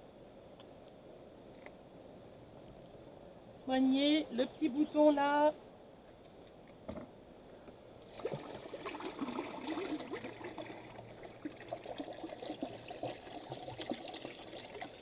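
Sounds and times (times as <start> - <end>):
liquid gurgling into a drain: 8.0 - 15.0.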